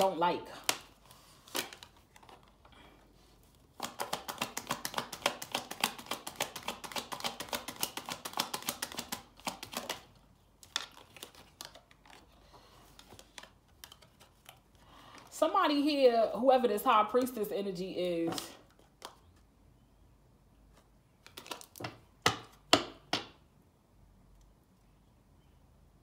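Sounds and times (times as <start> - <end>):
cards being shuffled: 0.0 - 2.6, 3.4 - 15.3, 20.7 - 22.8
cards clicking when handled: 3.8 - 12.2.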